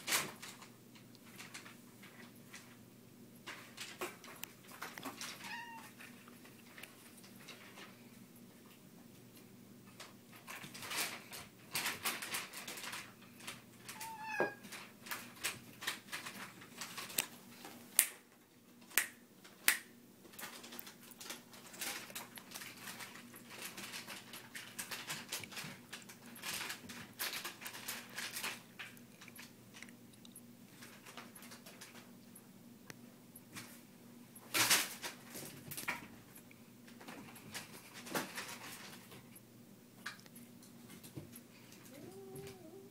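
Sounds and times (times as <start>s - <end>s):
kitten meow: 5.4s - 6.0s, 14.0s - 14.6s, 41.9s - 42.9s
foil balls rustling: 10.4s - 17.9s, 20.3s - 29.0s.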